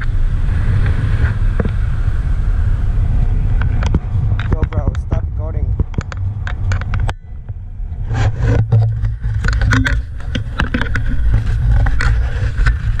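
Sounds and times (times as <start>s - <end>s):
wind rushing over microphone: 0.0s - 13.0s
camera brushing against clothing: 8.0s - 13.0s.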